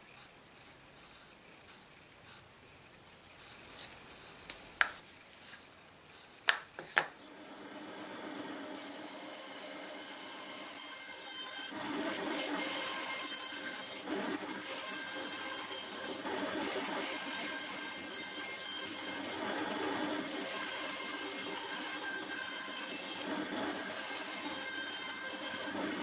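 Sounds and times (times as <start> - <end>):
band saw cutting wood: 6.9 - 26.0.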